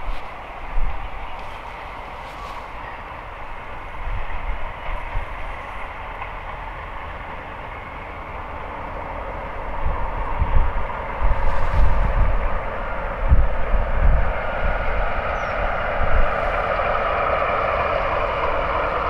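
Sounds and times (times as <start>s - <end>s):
diesel locomotive droning: 0.0s - 19.0s
wind buffeting microphone: 0.0s - 19.0s.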